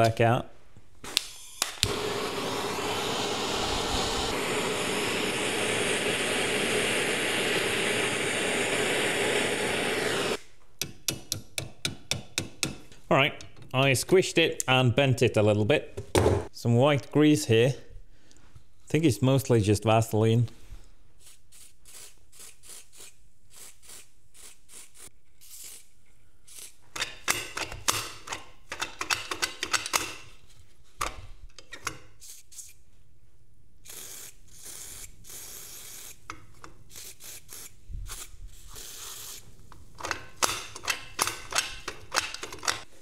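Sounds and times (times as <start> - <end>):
aerosol spray hissing: 1.9 - 10.4.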